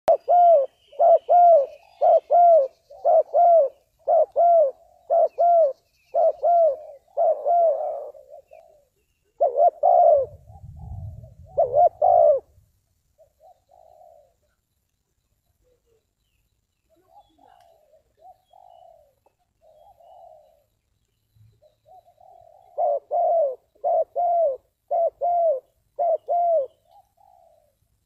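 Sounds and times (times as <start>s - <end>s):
dove cooing: 0.1s - 12.6s, 13.2s - 14.6s, 17.0s - 20.7s, 21.6s - 27.8s.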